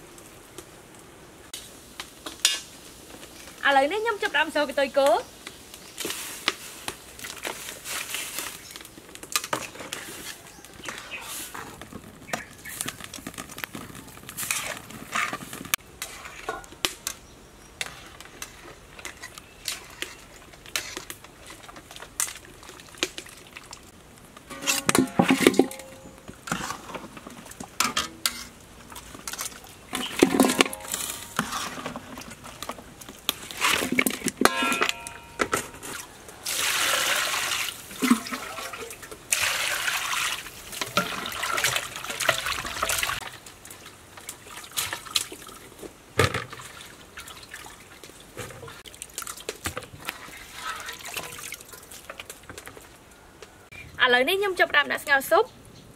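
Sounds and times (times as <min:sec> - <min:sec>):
metal pot and utensils clanking: 0:02.3 - 0:02.7, 0:09.3 - 0:17.2, 0:24.4 - 0:36.1, 0:40.7 - 0:43.2
water pouring and splashing: 0:06.0 - 0:16.9, 0:17.8 - 0:53.0.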